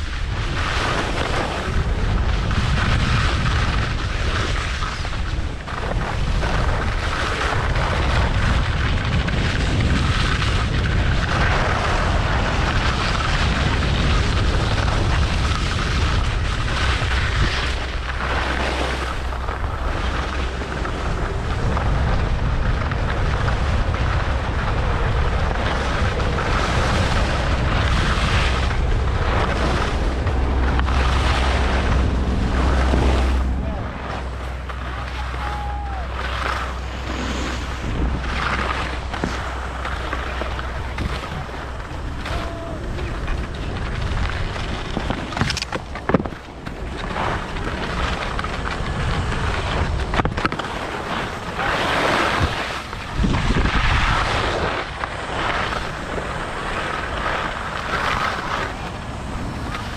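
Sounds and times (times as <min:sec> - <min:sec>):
skis sliding over snow: 0:00.0 - 0:59.9
wind buffeting microphone: 0:00.0 - 0:59.9.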